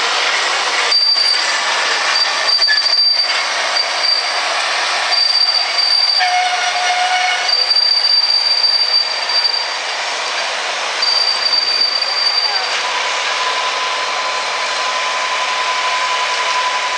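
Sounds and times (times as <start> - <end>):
tractor diesel engine running: 0.0 - 6.4, 7.6 - 15.8
thin high whine: 0.7 - 16.9
brief lower tone: 11.0 - 12.8.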